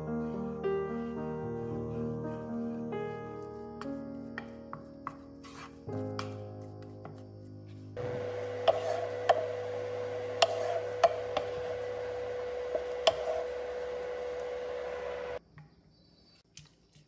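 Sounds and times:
electric cooktop hum: 8.0 - 15.4
wooden spatula knocking a pan: 10.4 - 11.5.

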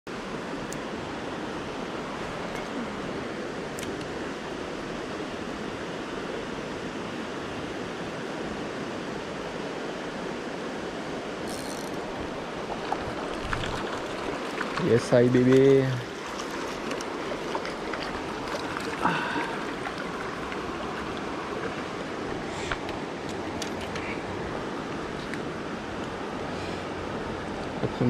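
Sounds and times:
creek water flowing: 0.1 - 6.8, 11.1 - 28.0
fishing reel clicks: 11.5 - 12.0.

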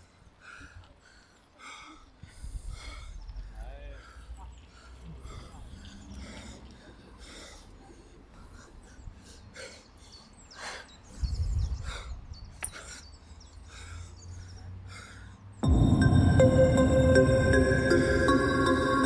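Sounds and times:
man breathing hard: 0.0 - 19.0
low rumble: 15.6 - 19.0.

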